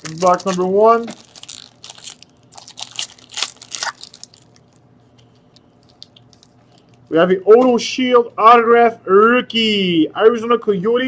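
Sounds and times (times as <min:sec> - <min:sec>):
wrapper crinkling and tearing: 0:00.0 - 0:04.8, 0:05.8 - 0:07.0.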